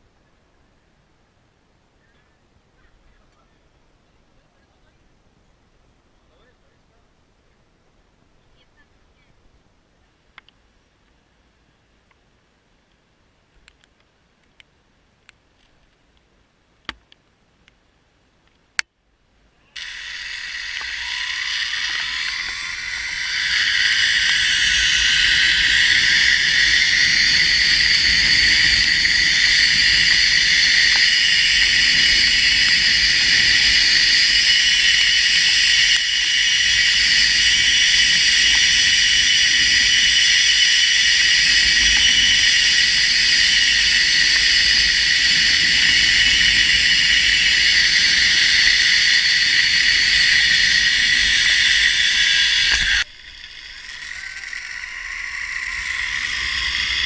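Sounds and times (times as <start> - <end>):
zipline pulleys whining on cable: 19.8 - 57.0.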